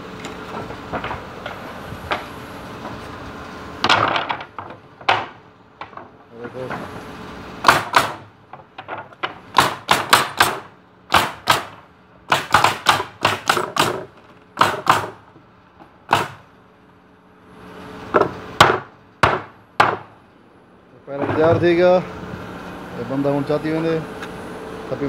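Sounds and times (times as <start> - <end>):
nail gun firing: 7.6 - 8.3, 9.5 - 15.2, 16.1 - 16.4.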